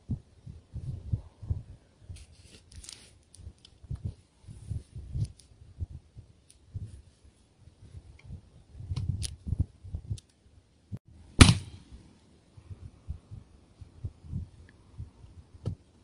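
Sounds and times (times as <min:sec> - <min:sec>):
wind gusts on microphone: 0:00.0 - 0:02.8, 0:03.4 - 0:10.2, 0:10.8 - 0:16.0
loud gunshot: 0:11.4 - 0:11.8.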